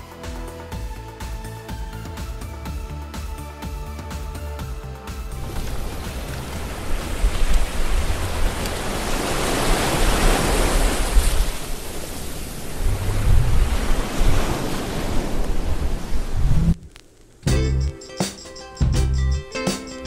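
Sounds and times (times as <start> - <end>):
surf breaking over rocks: 5.4 - 17.0
wind buffeting microphone: 5.4 - 17.0.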